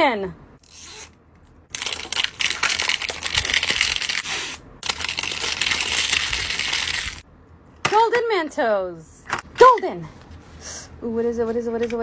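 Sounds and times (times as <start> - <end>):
plastic wrapping crinkling: 1.7 - 7.2.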